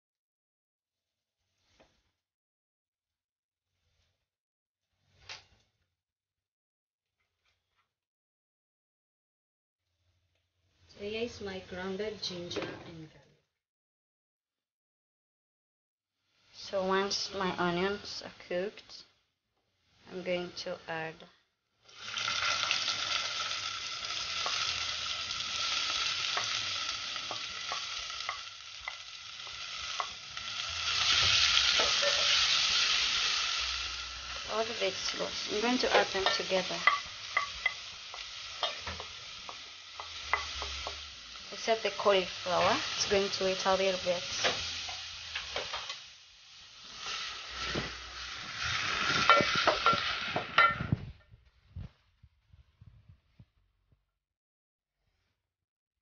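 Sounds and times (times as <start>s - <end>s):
peppers sizzling in oil: 16.4s - 18.9s, 19.7s - 21.1s, 21.8s - 51.0s
wooden spoon scraping pot: 35.7s - 37.8s.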